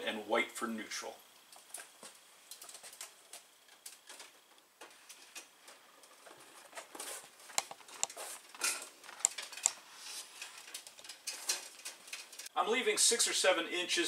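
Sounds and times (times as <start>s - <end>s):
wires scraping against metal: 1.6s - 12.5s.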